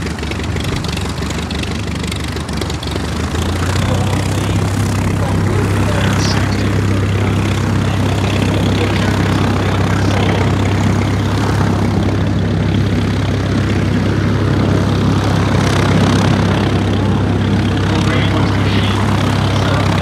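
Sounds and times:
light aircraft engine flying past: 0.0s - 20.0s.

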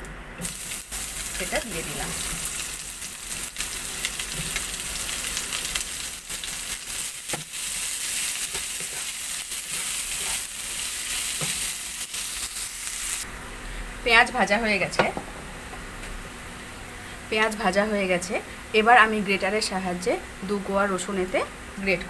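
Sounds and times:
onions sizzling in oil: 0.4s - 13.3s.

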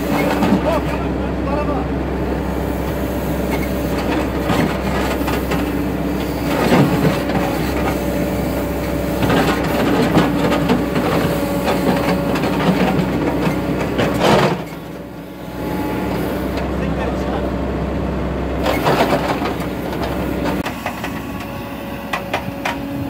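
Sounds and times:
diesel engine under load: 0.0s - 23.0s.

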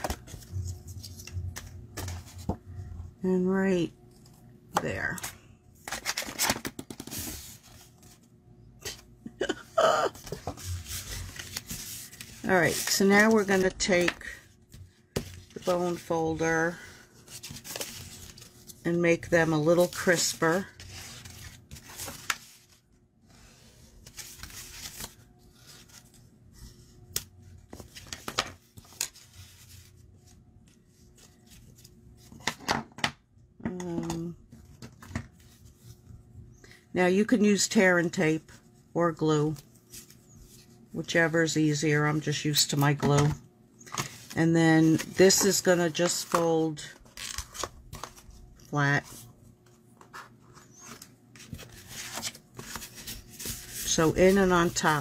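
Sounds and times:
paper being handled: 10.2s - 22.8s, 50.0s - 55.0s.

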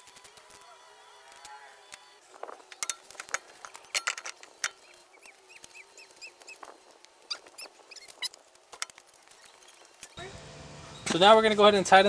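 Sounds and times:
lug nuts clinking: 2.5s - 4.9s.

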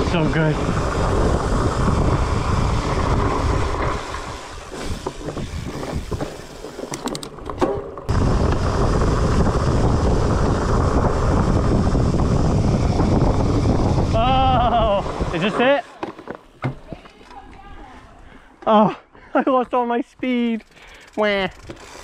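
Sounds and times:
wind rushing over microphone: 0.0s - 7.0s, 8.1s - 15.8s
bike tyres rumbling on dirt: 0.0s - 17.0s
sharp clicks and rattles: 4.8s - 9.4s, 20.4s - 22.0s.

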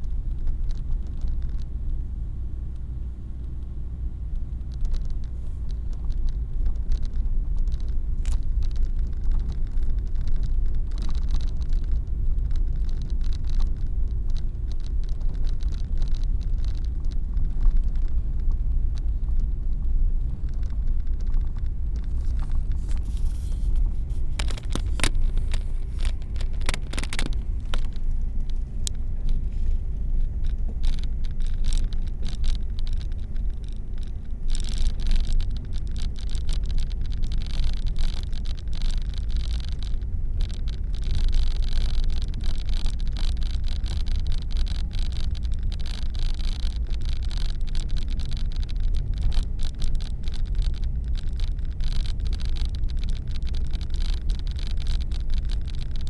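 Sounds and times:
car engine and tyres rumbling: 0.0s - 56.0s
sharp ticks: 30.2s - 56.0s.

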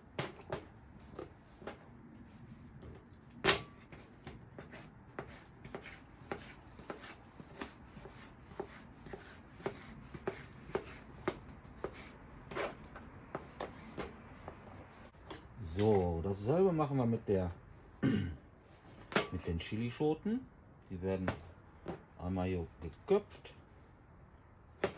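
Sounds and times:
knife chopping on cutting board: 4.6s - 12.7s.

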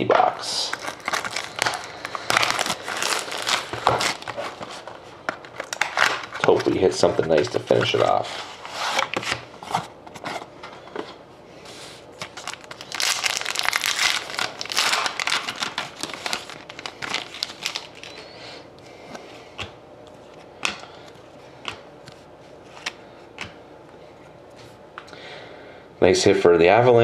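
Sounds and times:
foil wrapper crinkling and tearing: 0.5s - 6.8s, 12.2s - 18.4s.

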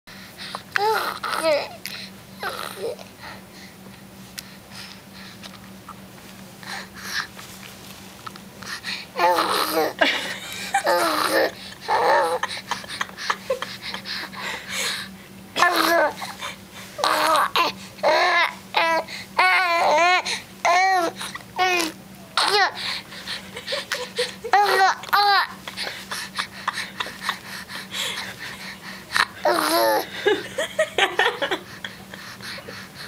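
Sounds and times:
baby cooing and babbling: 0.8s - 1.8s, 2.4s - 3.0s, 9.2s - 10.0s, 10.8s - 12.5s, 15.6s - 16.3s, 17.0s - 22.8s, 29.4s - 30.1s.

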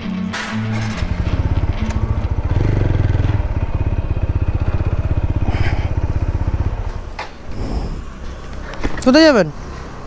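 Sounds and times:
motorcycle engine idling: 0.6s - 10.0s.

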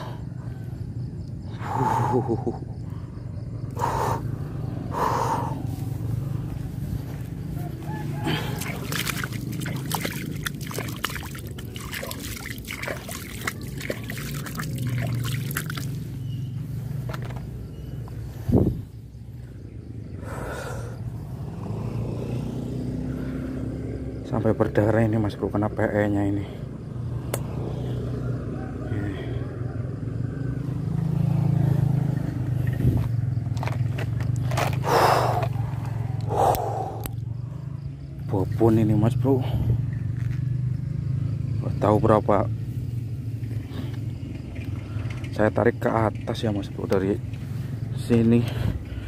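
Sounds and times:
low motor hum: 0.0s - 23.9s
water trickling and splashing: 8.2s - 16.1s
sharp clicks and ticks: 27.3s - 27.5s.

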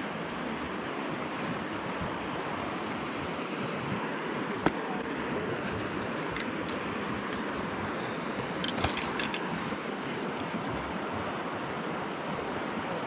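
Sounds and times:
river water rushing over rocks: 0.0s - 13.0s.

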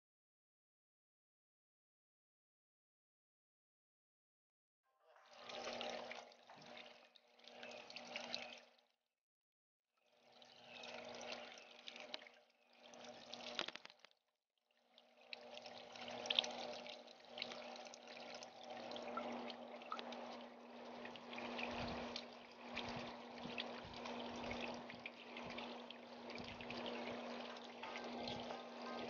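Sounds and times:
water trickling over rocks: 5.3s - 8.9s, 10.0s - 14.2s, 14.8s - 29.0s
steady low hum: 15.4s - 29.0s.

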